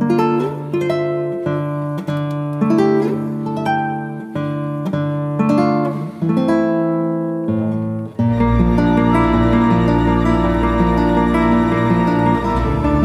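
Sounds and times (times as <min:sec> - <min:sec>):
plucked notes and chords: 0:00.0 - 0:13.0.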